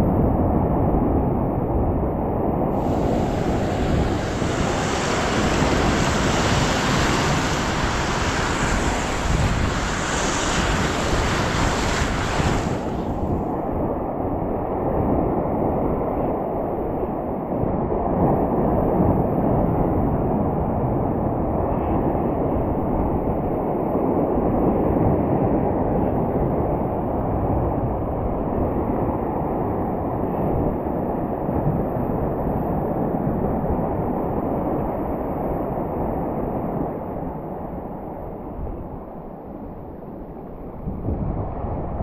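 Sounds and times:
wind rumbling on microphone: 0.0 - 42.0
surf washing in: 2.7 - 16.0.

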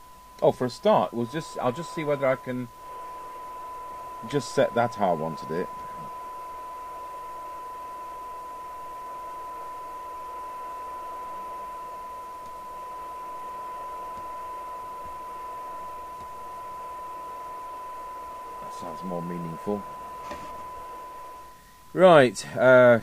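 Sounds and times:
steady radio test tone: 0.0 - 23.0
radio speaker hiss: 0.4 - 10.1, 18.4 - 23.0.

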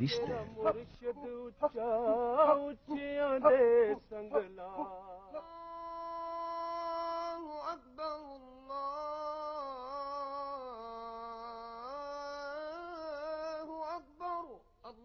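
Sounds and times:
person singing wordless notes: 0.0 - 6.6.

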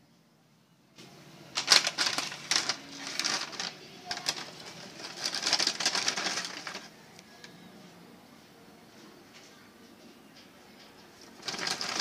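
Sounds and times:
chips packet crinkling: 1.6 - 6.9, 11.3 - 12.0.

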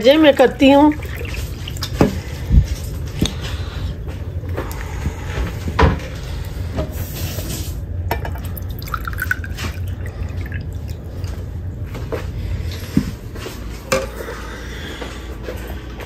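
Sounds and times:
steady low hum: 0.0 - 16.0
drink pouring into a glass: 8.2 - 10.9.

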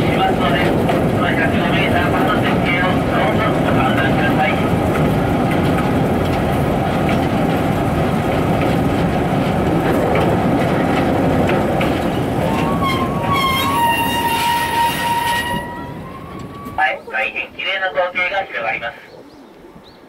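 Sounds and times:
wheels rumbling on rail: 0.0 - 18.0
high pitched squeal: 12.4 - 17.0.

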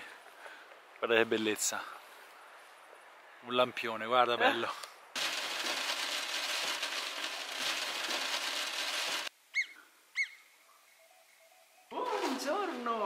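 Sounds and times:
steady rushing hiss: 5.2 - 11.9
bird calls: 9.5 - 12.3.

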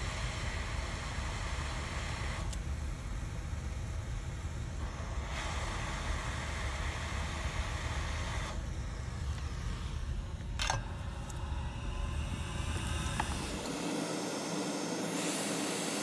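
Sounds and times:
hot-air station hissing: 0.0 - 2.6, 4.8 - 16.0
low hum: 0.0 - 16.0.

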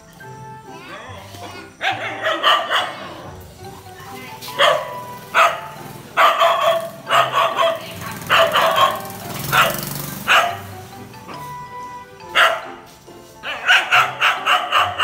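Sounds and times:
dog barking: 1.4 - 3.3, 4.5 - 10.8, 12.3 - 12.8, 13.4 - 15.0.

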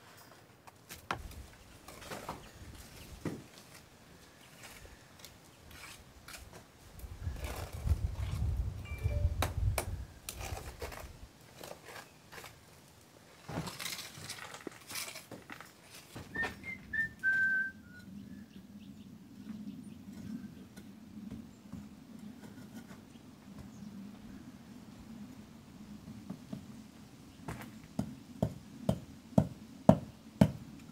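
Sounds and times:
trowel scraping on stone: 5.7 - 6.5
person whistling: 16.3 - 18.1.

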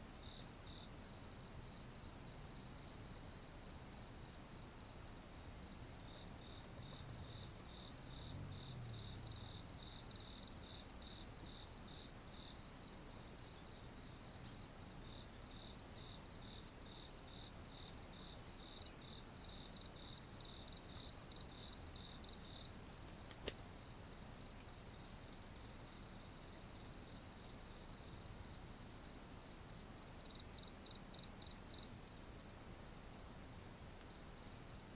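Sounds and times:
insects trilling: 0.2 - 34.9
sharp click: 23.1 - 23.6.

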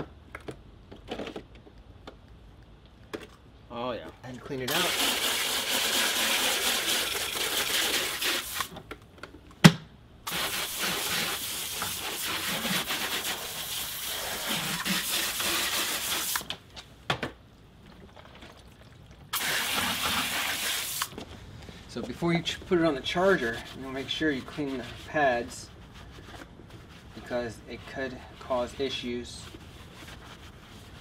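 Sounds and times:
hose nozzle spraying water: 4.7 - 8.7, 10.3 - 16.5, 19.3 - 21.2.

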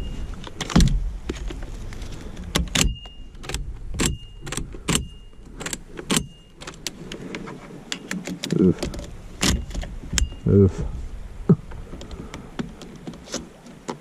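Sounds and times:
short high ring: 4.1 - 5.4.

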